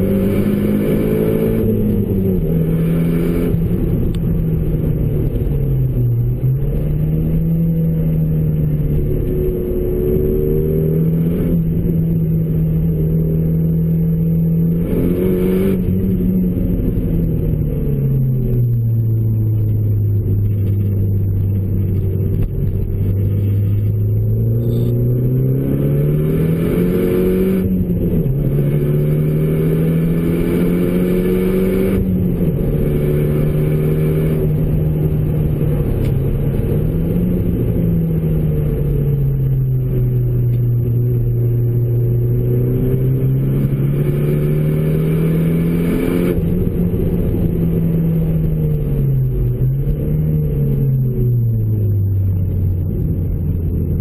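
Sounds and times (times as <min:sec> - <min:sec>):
car engine accelerating and shifting: 0:00.0 - 0:54.0.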